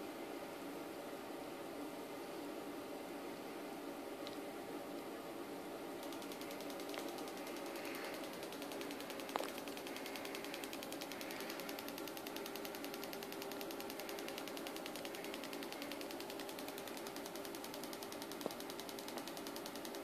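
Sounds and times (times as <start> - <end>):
steady low hum: 0.0 - 20.0
sharp click: 6.0 - 20.0
spark plug arcing ticks: 6.0 - 20.0.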